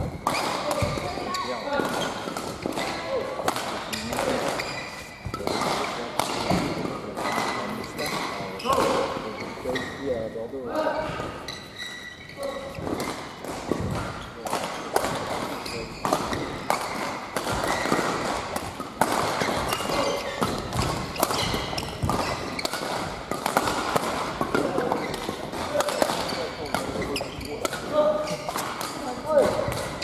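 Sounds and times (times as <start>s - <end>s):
rackets hitting shuttlecock: 0.0s - 9.4s, 12.6s - 30.0s.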